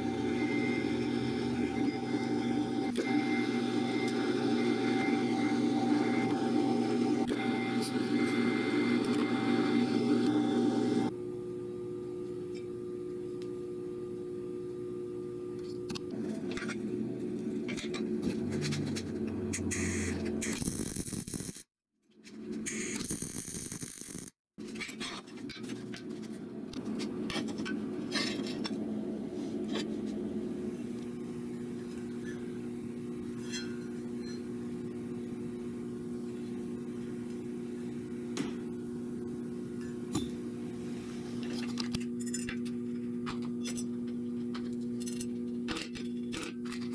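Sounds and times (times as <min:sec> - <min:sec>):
steady motor hum: 0:00.0 - 0:20.5
steady shop hum: 0:00.0 - 0:46.9.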